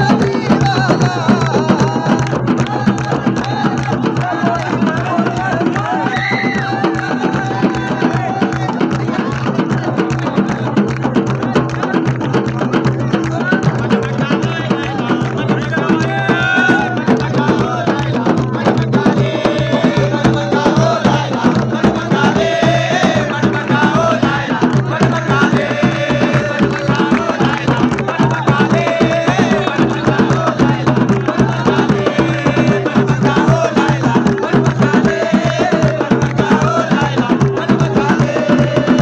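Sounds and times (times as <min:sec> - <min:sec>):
fast folk drumming: 0:00.0 - 0:39.0
group of voices chanting: 0:13.8 - 0:39.0.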